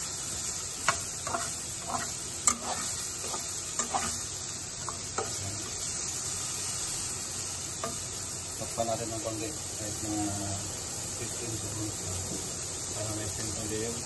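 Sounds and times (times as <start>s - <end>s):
broccoli sizzling in oil: 0.0s - 14.0s
spatula scraping a pot: 0.8s - 5.4s.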